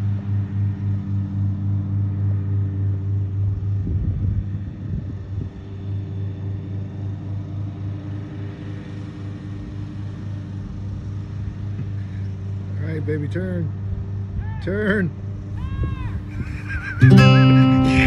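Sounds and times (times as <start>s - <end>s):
tractor engine running: 15.2s - 18.0s.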